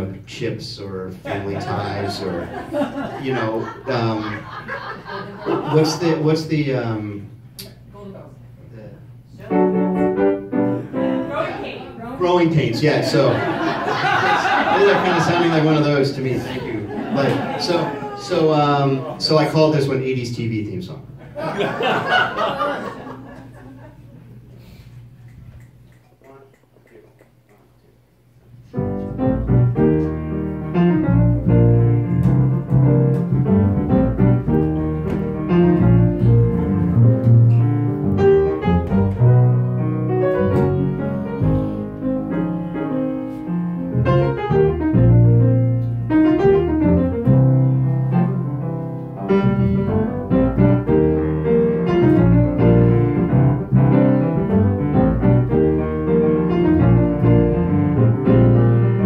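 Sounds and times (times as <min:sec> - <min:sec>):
jazz piano: 0:09.3 - 0:11.9, 0:28.4 - 0:59.0
upright bass: 0:28.7 - 0:59.0.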